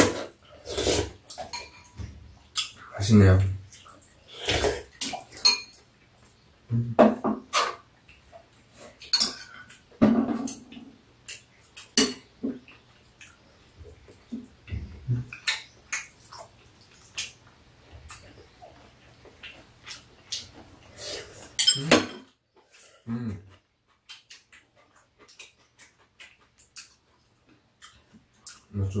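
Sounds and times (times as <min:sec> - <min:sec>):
cutlery clinking on bowls: 0:01.3 - 0:02.0, 0:05.0 - 0:05.9, 0:09.0 - 0:12.8, 0:21.4 - 0:22.4.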